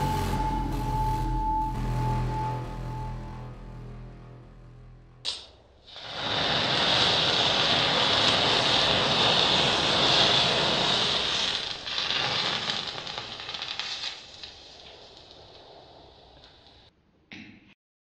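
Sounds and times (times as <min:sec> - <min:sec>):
flames crackling: 0:05.3 - 0:16.9
matches flaring with hissing: 0:05.8 - 0:16.9.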